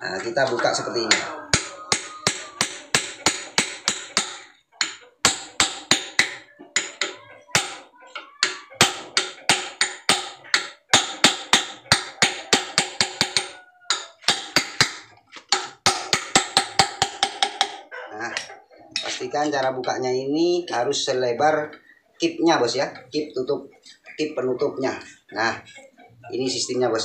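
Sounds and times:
hammer tapping on steel: 0.2 - 7.8, 8.4 - 17.8.

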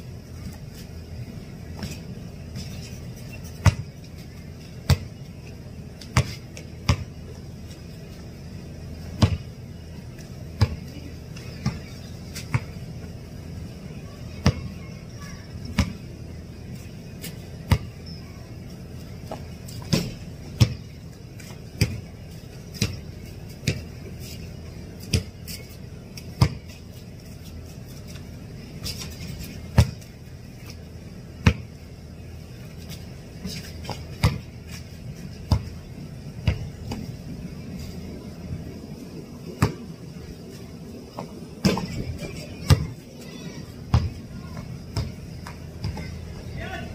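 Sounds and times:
basketball bouncing on concrete: 3.5 - 4.0, 4.8 - 7.3, 9.1 - 9.6, 10.2 - 12.8, 14.4 - 14.8, 15.6 - 16.1, 17.3 - 18.2, 19.2 - 22.1, 22.7 - 24.0, 25.0 - 26.8, 28.8 - 30.2, 31.4 - 31.8, 33.4 - 34.6, 35.4 - 35.8, 36.4 - 37.1, 39.6 - 39.9, 41.1 - 46.2.

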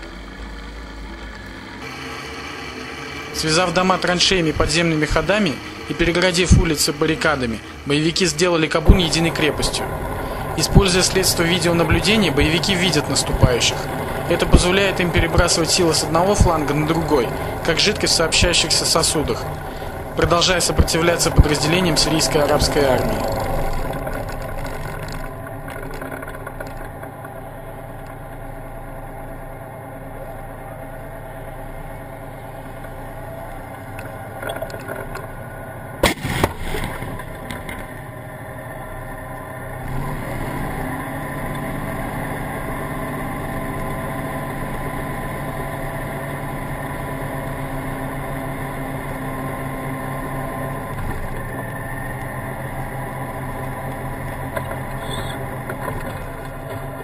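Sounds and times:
tank diesel engine running: 0.0 - 57.0
gun firing: 36.0 - 37.2
shell bursting: 36.0 - 37.5.

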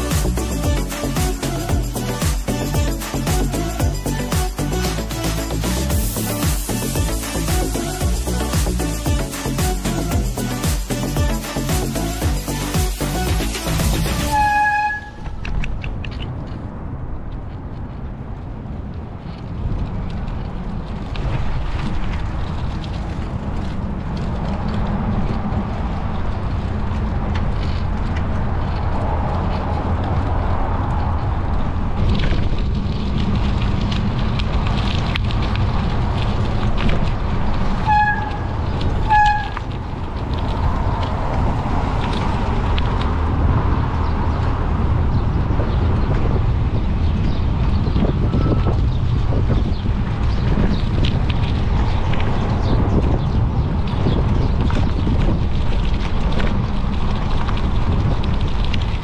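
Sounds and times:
horn toots: 0.0 - 15.4, 37.8 - 39.7
bicycle tyre noise: 0.0 - 59.0
wind rumble on microphone: 0.0 - 59.0.

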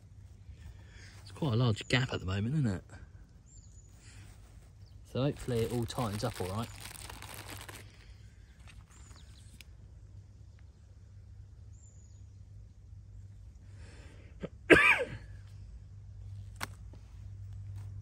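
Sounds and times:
faint background hum: 0.0 - 18.0
person coughing: 14.4 - 15.3.

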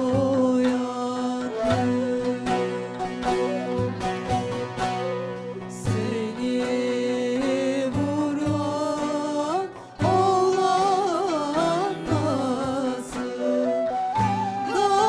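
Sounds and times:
women singing folk song: 0.0 - 15.0.

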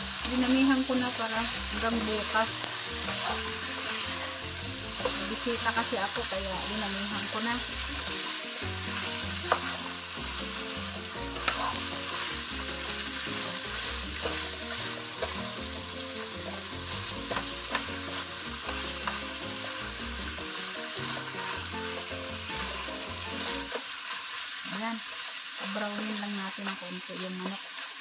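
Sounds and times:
chicken sizzling in hot oil: 0.0 - 28.0
spatula clicking and scraping pan: 0.2 - 10.1, 11.2 - 15.6, 16.2 - 20.0.

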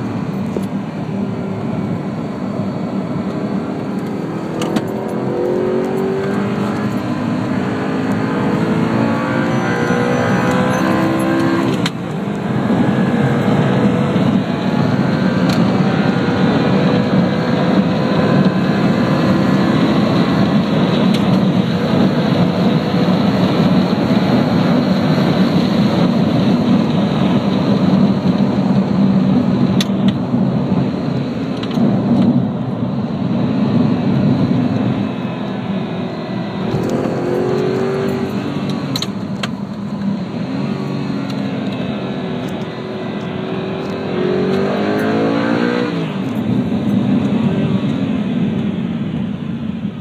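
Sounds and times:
car engine and road noise: 0.0 - 50.0.

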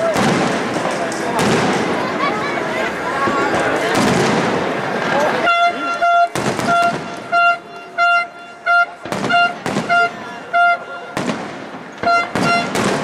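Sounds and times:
firework bang: 0.0 - 2.2, 3.2 - 5.1, 6.3 - 7.4, 9.0 - 10.2, 11.2 - 13.0
fireworks crackling: 0.0 - 13.0
horn honking short blasts: 5.4 - 11.3, 12.0 - 12.9.

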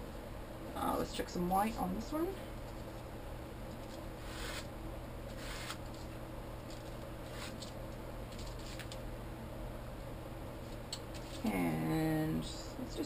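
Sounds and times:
paper rustling and rubbing: 3.7 - 4.7, 5.3 - 6.1, 6.7 - 9.0
page being peeled off: 5.3 - 5.8.

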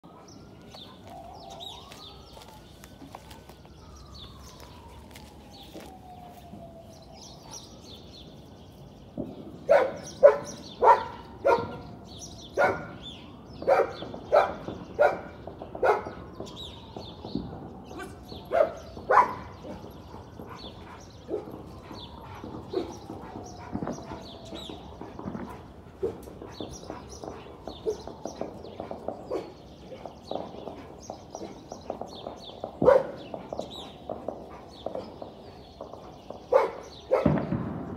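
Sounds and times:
birds chirping: 0.0 - 37.9
dog barking: 9.7 - 11.8, 12.6 - 13.0, 13.6 - 16.2, 18.5 - 19.9, 28.8 - 30.1, 32.8 - 33.2, 36.5 - 37.4.

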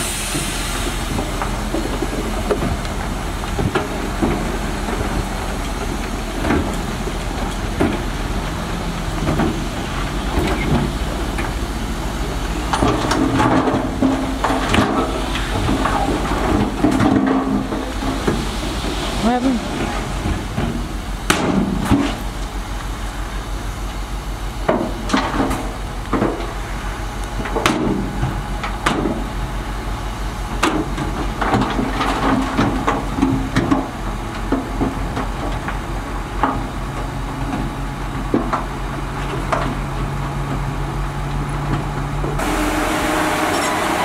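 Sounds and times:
heavy machinery diesel engine: 0.0 - 44.0
metal clanks and knocks: 12.6 - 18.9.

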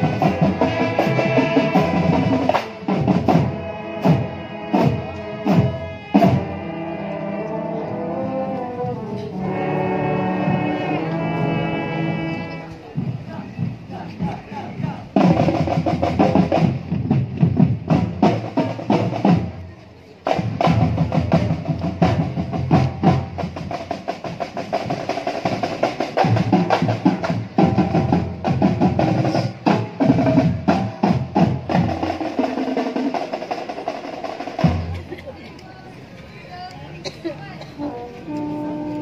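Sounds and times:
snare and bass drums: 0.0 - 6.6, 12.9 - 35.2
brass chords: 0.0 - 14.0, 37.6 - 39.0.

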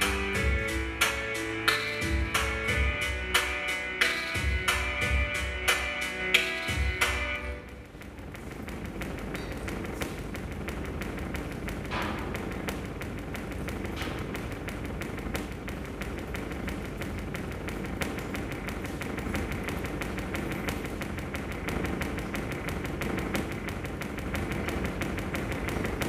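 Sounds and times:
rapid light tapping: 7.7 - 26.0.

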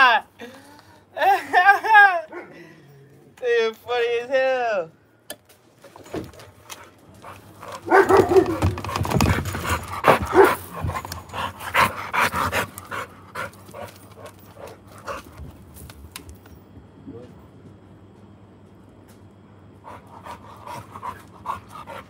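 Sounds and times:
dog panting: 6.7 - 15.6, 19.8 - 22.0.

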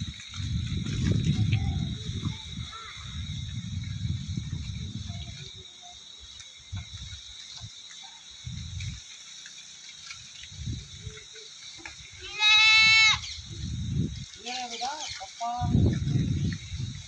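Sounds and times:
goat bleating: 12.2 - 13.2.

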